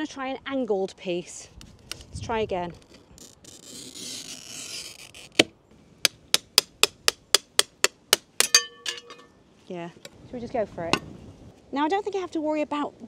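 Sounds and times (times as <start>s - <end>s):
glass cutter scoring glass: 2.8s - 6.7s
glass ringing: 8.4s - 9.4s.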